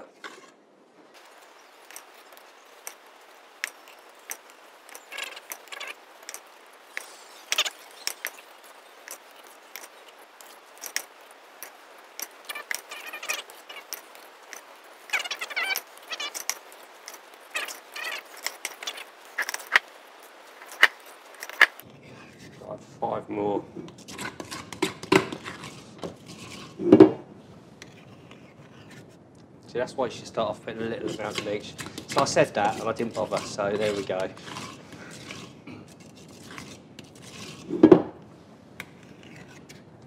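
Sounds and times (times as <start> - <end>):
spoons scraping metal: 1.2 - 22.6, 23.9 - 26.8, 30.8 - 37.8.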